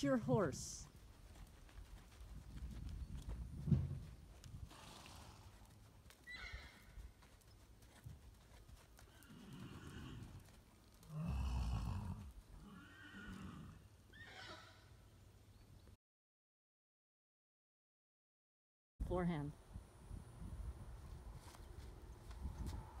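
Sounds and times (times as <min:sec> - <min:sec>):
horse neighing: 0:06.3 - 0:06.8, 0:09.1 - 0:10.3, 0:11.1 - 0:14.9.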